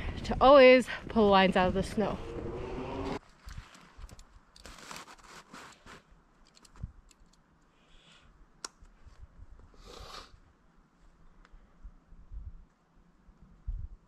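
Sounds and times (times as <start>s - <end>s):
plastic tubing scraping and rustling: 3.2s - 6.1s.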